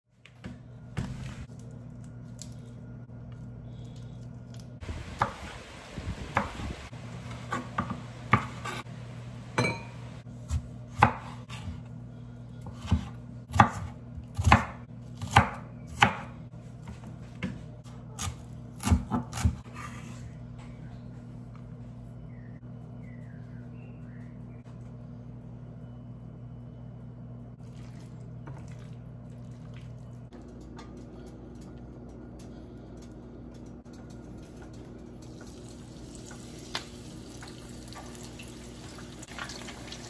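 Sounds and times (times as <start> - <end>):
steady low hum: 0.1 - 40.0
knife chopping on wooden board: 12.6 - 16.3, 18.2 - 19.9.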